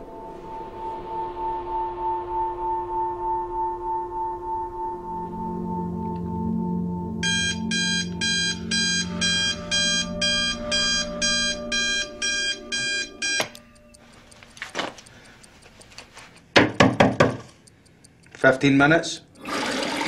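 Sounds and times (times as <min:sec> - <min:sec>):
alarm clock beeping: 0:07.1 - 0:16.5
alarm clock click: 0:07.2 - 0:16.5.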